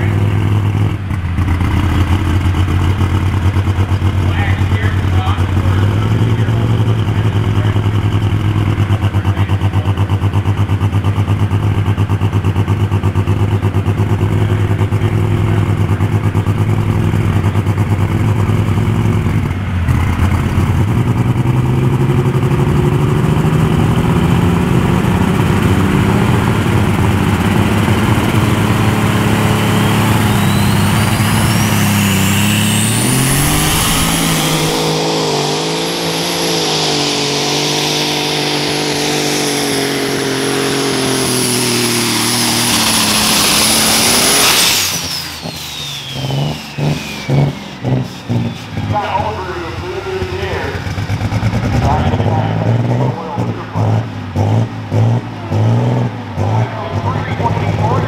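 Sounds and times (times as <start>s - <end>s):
high whine rising in pitch: 29.7s - 38.4s.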